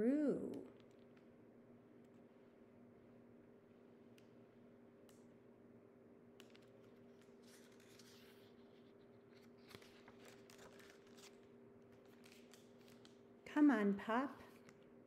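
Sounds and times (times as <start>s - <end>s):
low room hum: 0.0s - 15.0s
paper page rustling: 6.4s - 13.2s.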